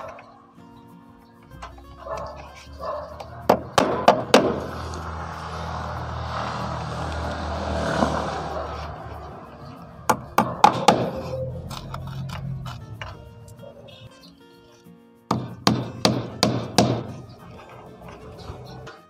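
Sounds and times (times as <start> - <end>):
hammer striking nails: 3.2 - 5.2, 10.1 - 11.4, 15.3 - 17.6.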